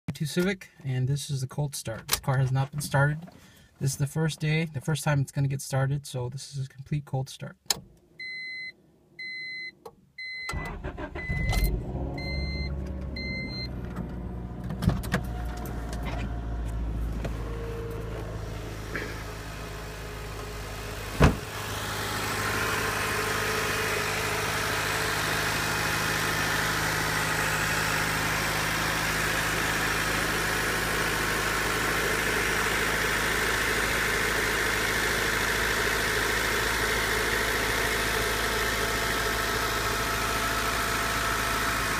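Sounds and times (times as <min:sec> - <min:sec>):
dashboard warning chime beeping: 0:08.2 - 0:13.8
car engine idling: 0:11.8 - 0:41.9
sharp thump: 0:21.1 - 0:21.5.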